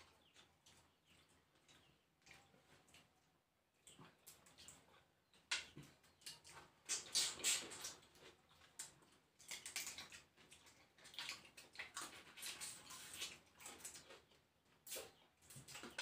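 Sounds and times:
eating mouth sounds: 0:06.8 - 0:08.0.

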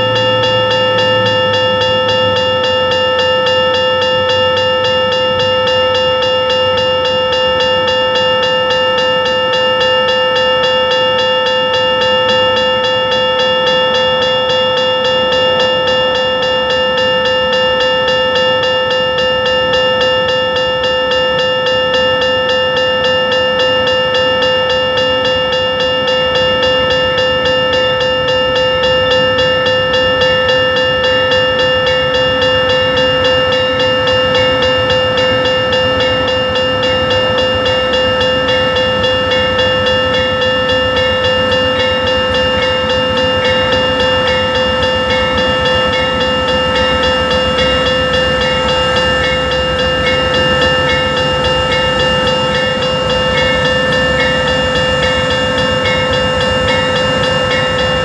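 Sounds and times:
train rumbling: 0:00.0 - 0:20.6, 0:26.0 - 0:58.0
railroad crossing bell ringing: 0:00.0 - 0:58.0.

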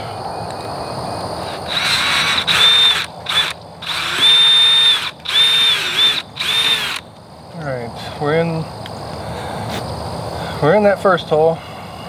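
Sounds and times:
cordless drill motor whine: 0:01.5 - 0:07.1.

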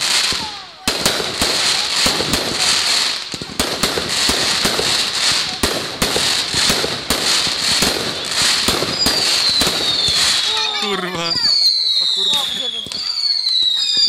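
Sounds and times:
fireworks bangs: 0:00.0 - 0:14.0.

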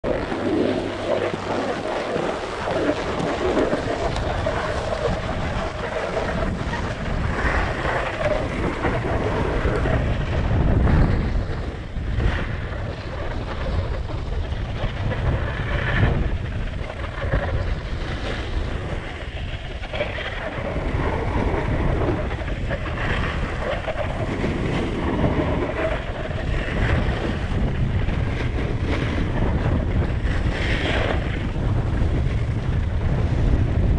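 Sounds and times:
wind rushing over microphone: 0:00.0 - 0:33.9
snowboard edge scraping snow: 0:00.1 - 0:14.0.

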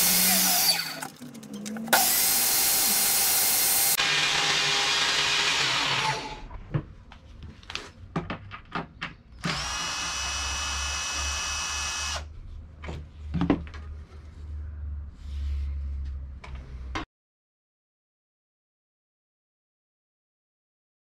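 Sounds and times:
cordless drill running: 0:00.0 - 0:01.0, 0:02.0 - 0:06.5, 0:09.4 - 0:12.3.

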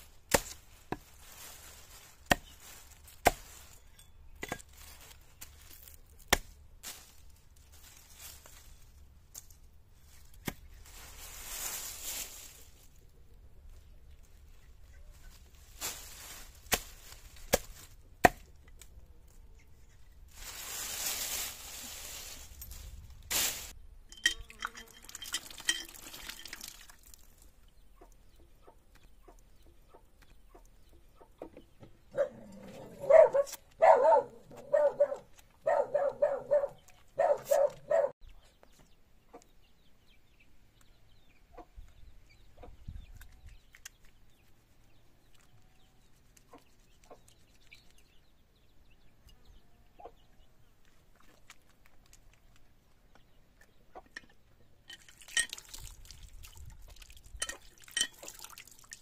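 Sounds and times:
hatchet chopping wood: 0:02.3 - 0:02.5, 0:17.5 - 0:18.5.

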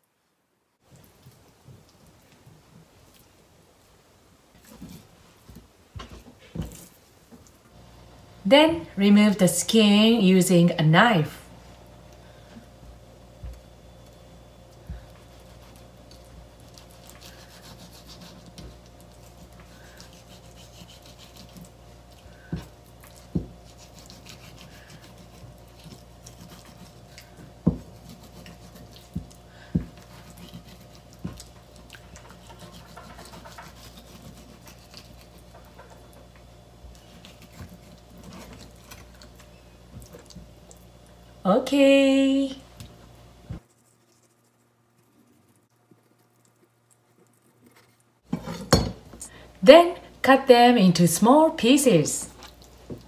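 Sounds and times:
knife scraping cutting board: 0:16.8 - 0:21.7, 0:22.4 - 0:31.5, 0:32.2 - 0:35.9, 0:47.7 - 0:48.9.

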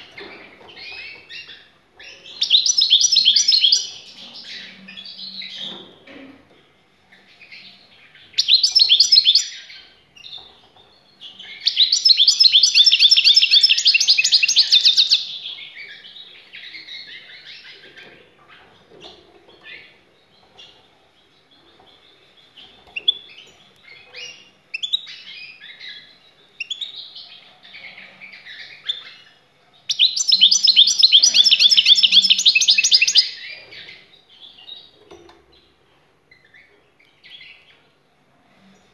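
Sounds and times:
bird trilling song: 0:00.0 - 0:05.8, 0:07.1 - 0:37.9
bird twittering and chirps: 0:00.0 - 0:06.2, 0:07.1 - 0:38.0.

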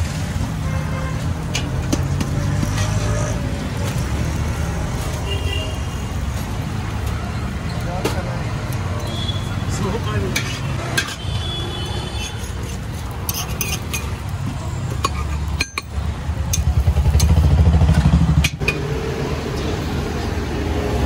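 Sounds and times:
low rumble of street traffic: 0:00.0 - 0:21.0
metal spatula clinking and scraping: 0:09.8 - 0:17.3.

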